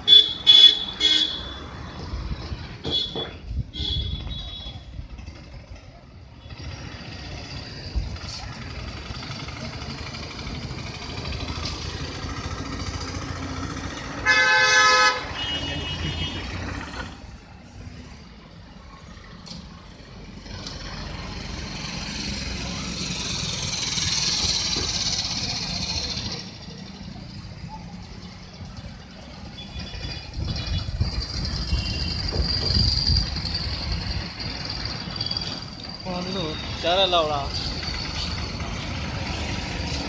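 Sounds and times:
motorbikes: 0:00.0 - 0:40.0
vehicle horn blaring: 0:02.9 - 0:04.8, 0:14.2 - 0:16.6.

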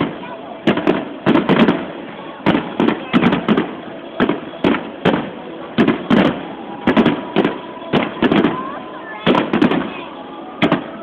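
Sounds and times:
fireworks bursting with sharp bangs: 0:00.0 - 0:11.0.

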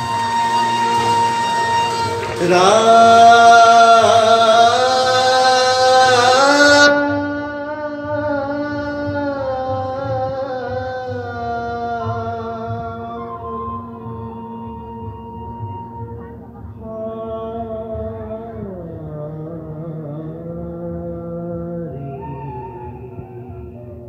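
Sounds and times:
harmonium drone: 0:00.0 - 0:10.0
person singing: 0:00.0 - 0:24.0.

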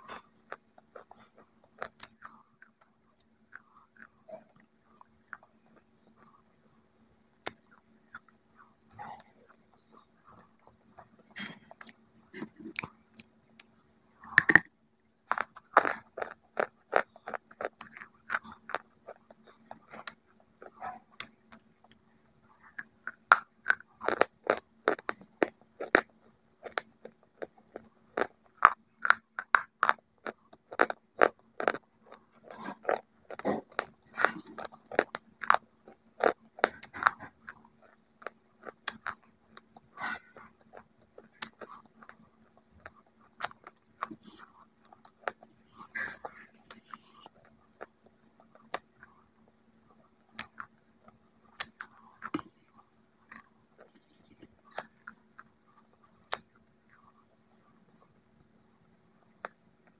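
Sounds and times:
crunchy chewing: 0:00.0 - 0:59.9
faint steady hum: 0:00.0 - 0:59.9.

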